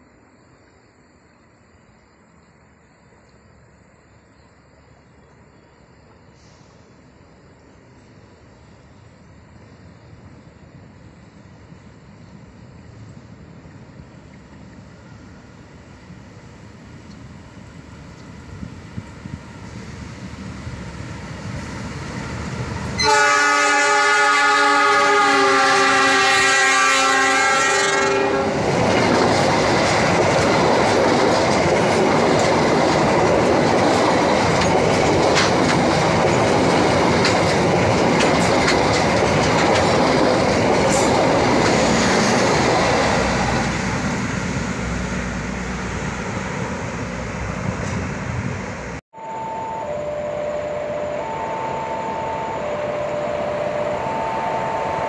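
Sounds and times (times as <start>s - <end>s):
train rumbling past: 0.0s - 55.0s
train horn blast: 22.9s - 28.6s
wheels clacking on rails: 27.8s - 49.0s.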